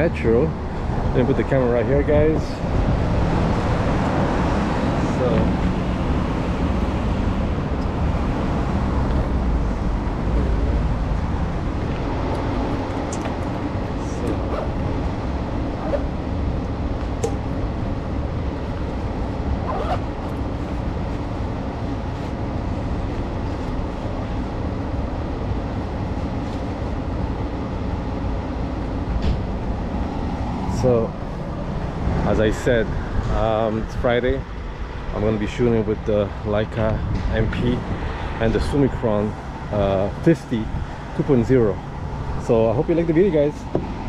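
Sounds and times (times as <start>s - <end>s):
rumble of passing cars: 0.0s - 44.0s
backpack clicks and rustles: 19.6s - 20.5s.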